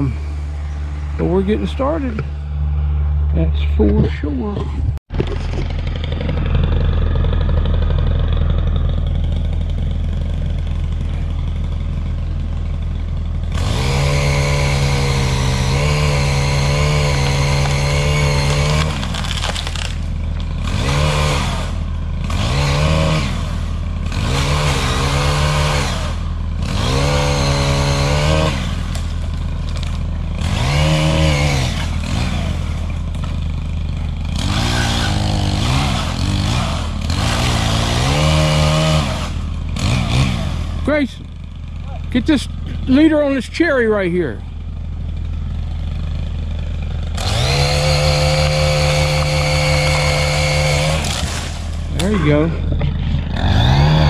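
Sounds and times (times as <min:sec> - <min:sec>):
pole saw engine revving: 0:13.4 - 0:41.1, 0:46.7 - 0:54.0.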